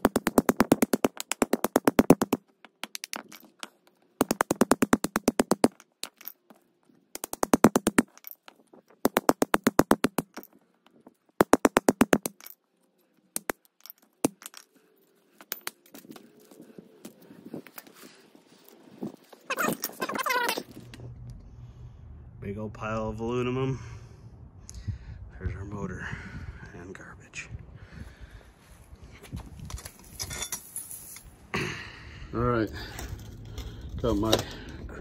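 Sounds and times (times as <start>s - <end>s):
hatchet striking metal windings: 0.0s - 12.7s, 13.3s - 16.5s.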